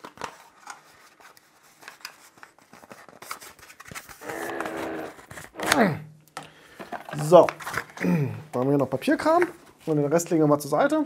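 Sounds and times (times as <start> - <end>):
cardboard packaging handled: 0.0 - 5.7.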